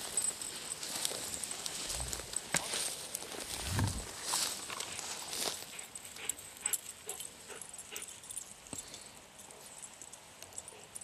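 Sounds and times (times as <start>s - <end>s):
footsteps crunching through dry grass: 0.0s - 6.8s.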